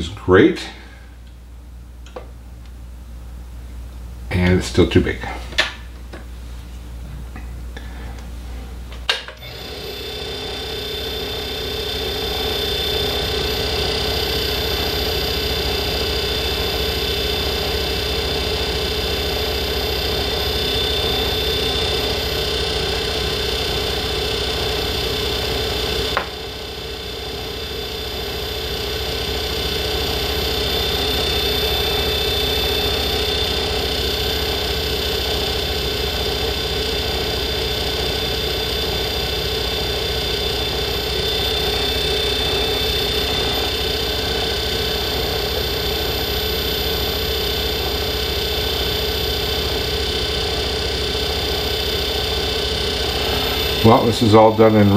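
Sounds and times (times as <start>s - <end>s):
lathe switch click: 9.0s - 9.5s
lathe motor humming and whining: 9.0s - 54.9s.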